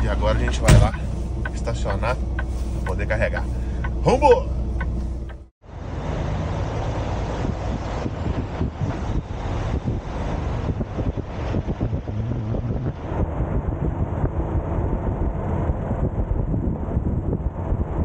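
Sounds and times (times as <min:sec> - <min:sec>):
truck diesel engine rumbling: 0:00.0 - 0:18.0
wind buffeting microphone: 0:07.2 - 0:18.0.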